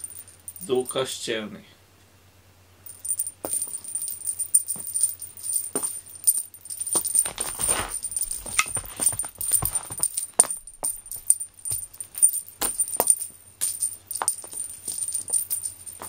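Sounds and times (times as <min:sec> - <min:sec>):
small jingle bell tinkling: 0:00.0 - 0:01.0, 0:02.8 - 0:16.0
cat rustling and scuffling: 0:04.7 - 0:13.2.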